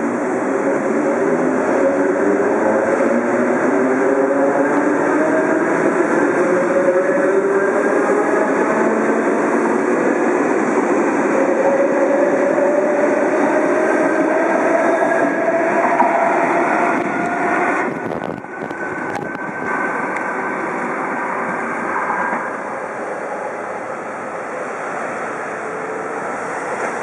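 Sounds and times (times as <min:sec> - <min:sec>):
train rolling noise: 0:00.0 - 0:27.0
wind on microphone: 0:08.0 - 0:22.5.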